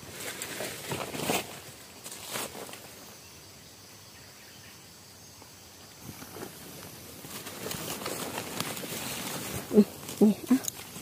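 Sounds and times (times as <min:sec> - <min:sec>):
rustling and scraping: 0:00.0 - 0:03.0, 0:06.0 - 0:11.0
high insect drone: 0:00.8 - 0:11.0.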